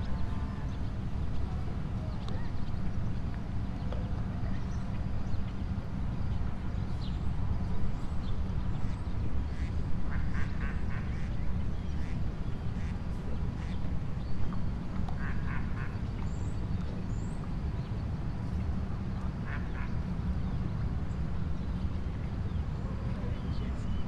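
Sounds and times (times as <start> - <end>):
steady low rumble: 0.0 - 24.0
ducks quacking: 9.5 - 11.3, 15.2 - 16.0, 19.4 - 20.0.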